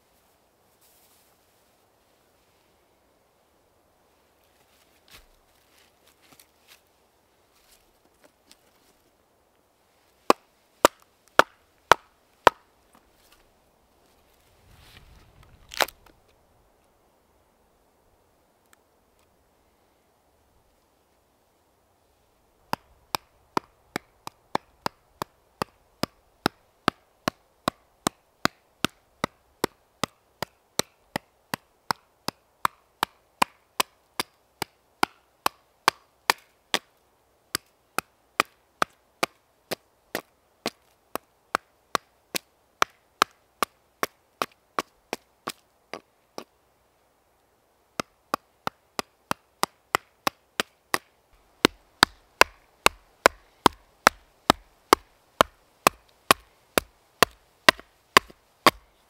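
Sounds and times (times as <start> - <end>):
axe chopping wood: 10.3 - 12.7, 22.7 - 36.9, 37.5 - 45.6, 48.0 - 58.8.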